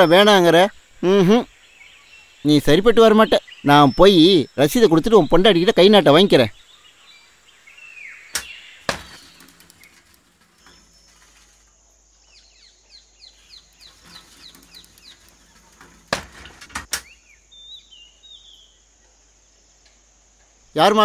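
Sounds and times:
small birds chirping: 0.0s - 21.0s
sharp clicks: 8.3s - 11.1s
bicycle stand clacks: 8.4s - 11.6s, 13.8s - 17.1s.

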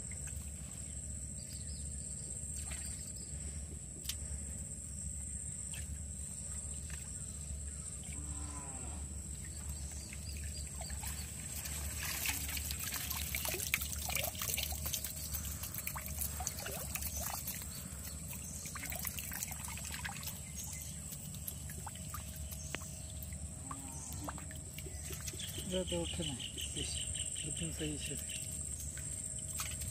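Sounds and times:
small water splashes: 2.4s - 3.2s, 9.3s - 26.3s, 27.8s - 29.9s
water trickling and dripping: 5.7s - 29.9s.

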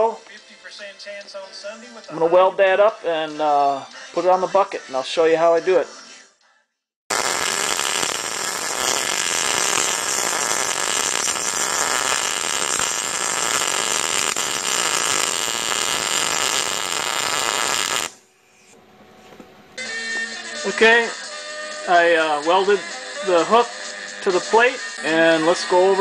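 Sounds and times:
welder arc crackling: 7.1s - 18.2s.

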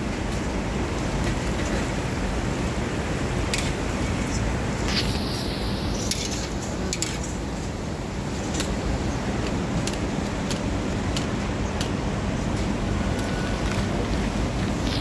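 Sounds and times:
steady background hiss: 0.0s - 15.0s.

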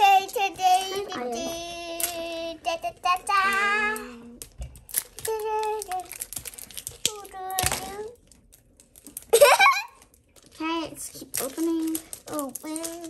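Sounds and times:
girl singing long notes: 0.0s - 4.4s.

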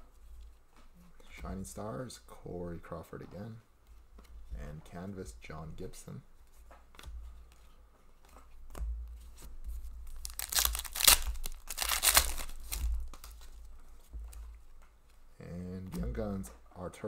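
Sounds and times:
cards rustling: 7.0s - 15.2s
foil wrapper tearing and crinkling: 10.1s - 13.6s.

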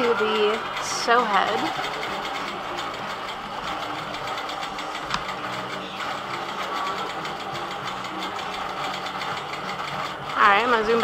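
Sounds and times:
quilting machine stitching: 0.0s - 11.0s.

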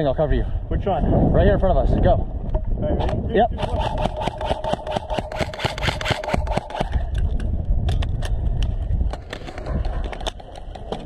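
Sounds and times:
wind on microphone: 0.0s - 11.0s
airsoft rifle firing: 3.6s - 7.1s.

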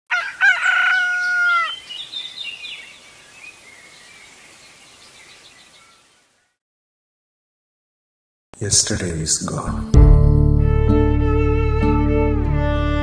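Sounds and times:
rooster crowing: 0.1s - 1.9s
small birds chirping: 0.6s - 6.6s.

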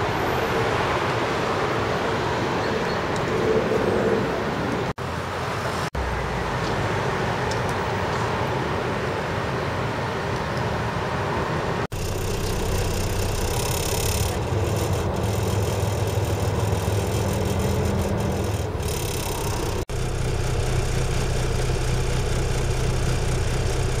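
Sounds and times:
car engine idling: 11.9s - 24.0s.

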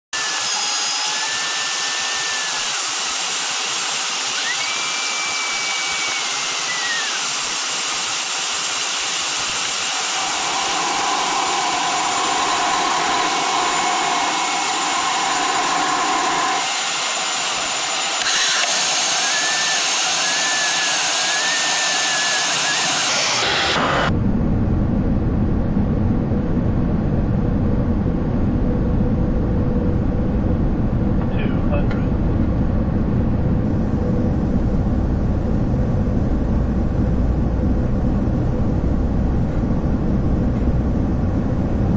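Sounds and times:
faint whistling tones: 4.4s - 7.2s
cockpit airflow hiss: 9.2s - 18.2s
low rumble: 24.0s - 41.9s.

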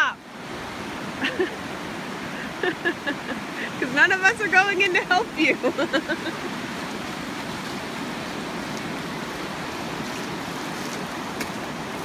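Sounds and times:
ocean waves breaking: 0.0s - 12.0s.

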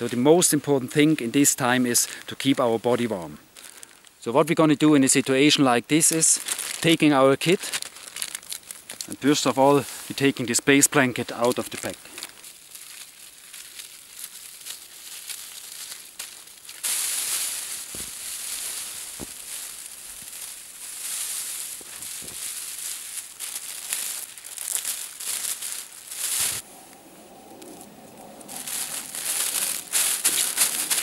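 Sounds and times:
foil blanket crinkling: 6.0s - 26.6s, 28.4s - 31.0s.

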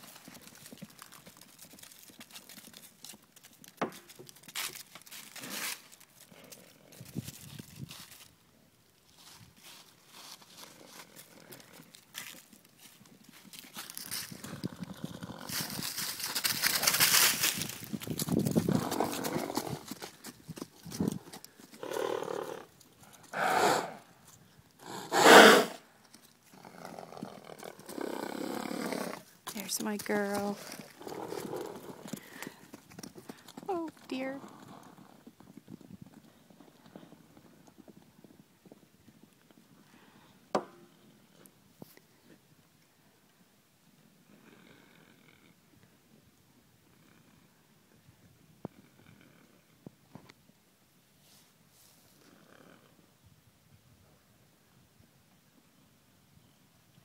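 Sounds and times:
horses snorting: 18.6s - 24.2s, 24.8s - 25.8s, 26.5s - 29.4s, 30.4s - 33.8s.

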